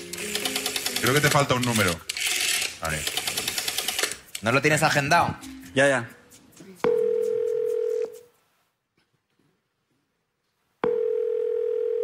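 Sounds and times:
telephone ringback tone: 0:06.9 - 0:08.2, 0:10.8 - 0:12.0.

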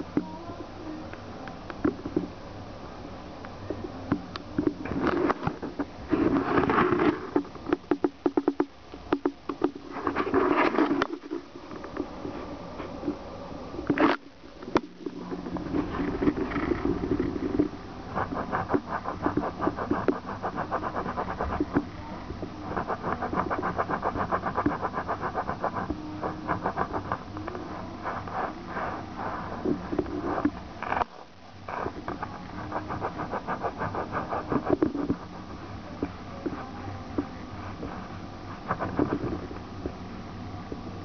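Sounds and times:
fingernails scratching on tabletop: 0:04.8 - 0:11.5, 0:14.8 - 0:21.9, 0:22.6 - 0:31.1, 0:31.7 - 0:35.3.

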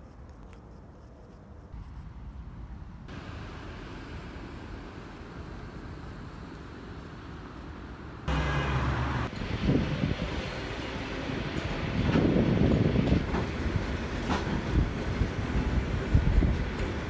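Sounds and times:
outdoor background rumble: 0:00.1 - 0:17.0
locomotive diesel engine humming: 0:02.6 - 0:17.0
train cars clattering over track: 0:09.3 - 0:17.0.

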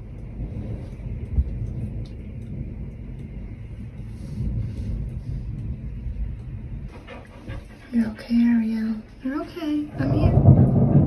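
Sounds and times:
heavy rain: 0:00.0 - 0:11.0
rain ticking on window glass: 0:00.0 - 0:11.0
thunder rumbling: 0:00.0 - 0:11.0.

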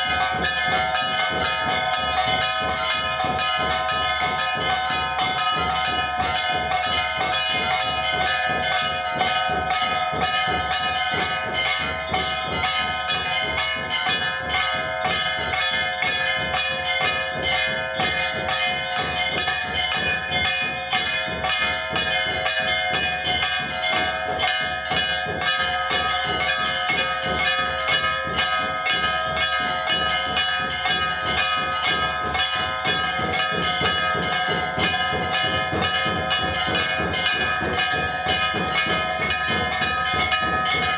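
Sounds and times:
temple bells ringing rapidly: 0:00.0 - 0:40.9.

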